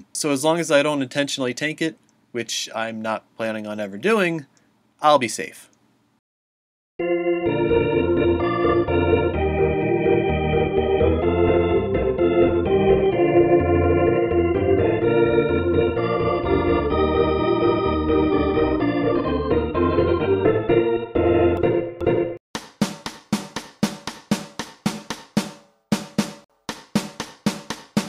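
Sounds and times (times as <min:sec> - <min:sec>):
organ chords: 0:07.0 - 0:22.4.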